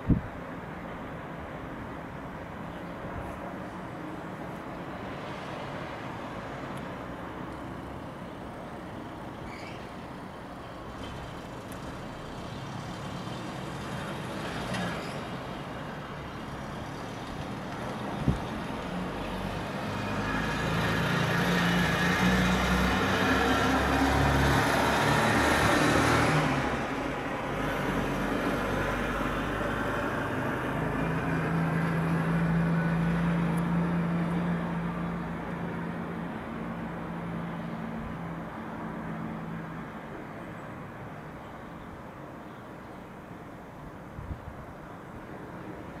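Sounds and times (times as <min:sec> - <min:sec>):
vehicles passing: 0:00.0 - 0:46.0
engine hum: 0:02.8 - 0:40.2.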